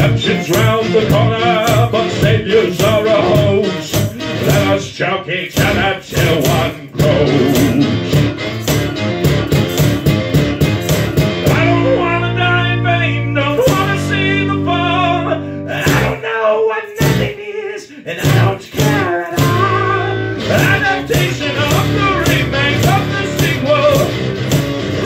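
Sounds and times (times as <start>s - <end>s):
man singing: 0.0s - 8.2s, 11.5s - 24.2s
nylon-string guitar strumming: 5.6s - 16.2s, 18.2s - 25.0s.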